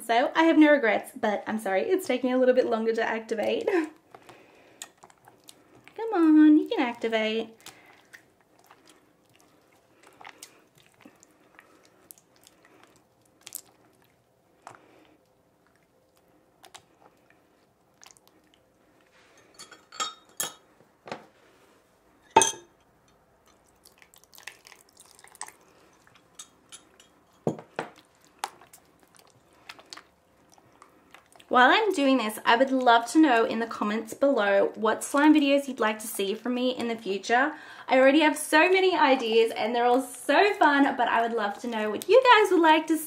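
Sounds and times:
slime squelching: 3.3 - 19.1, 23.5 - 33.5.

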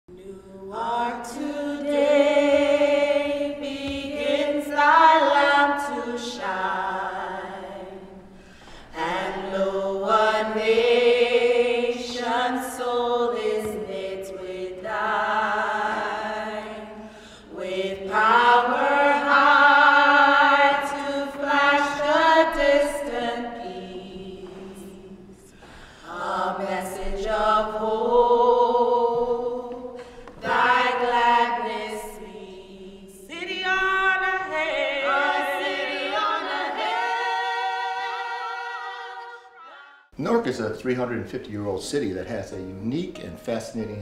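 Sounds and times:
choir singing long notes: 0.1 - 40.1
short breaths: 8.3 - 9.0, 17.0 - 17.5, 25.4 - 26.1, 30.0 - 30.4.

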